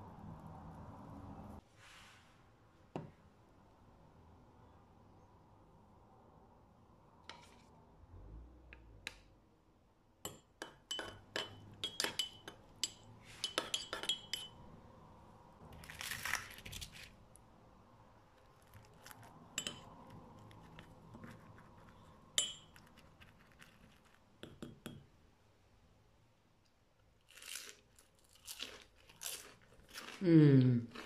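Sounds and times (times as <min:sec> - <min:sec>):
spoon clinking against pot: 0:10.2 - 0:14.6, 0:19.6 - 0:20.5, 0:22.3 - 0:23.1.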